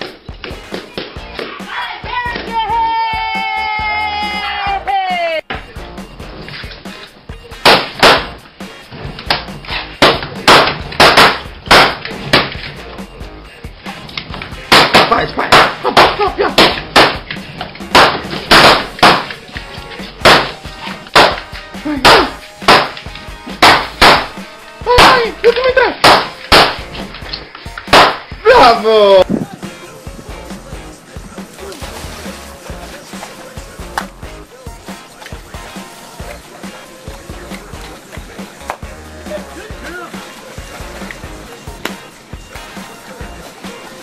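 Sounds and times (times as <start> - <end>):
balloons popping: 7.6 - 8.5, 9.1 - 12.8, 14.1 - 28.4.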